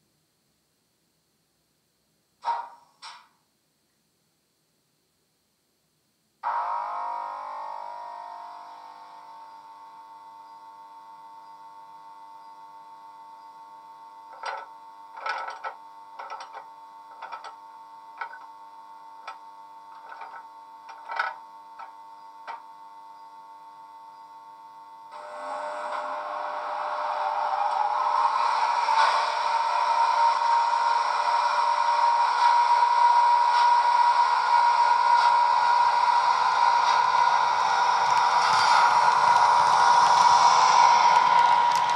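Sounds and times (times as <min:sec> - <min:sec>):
electric hum from small speaker: 0:00.0 - 0:41.9
short irregular clicks and clunks: 0:14.4 - 0:17.6, 0:20.0 - 0:22.6.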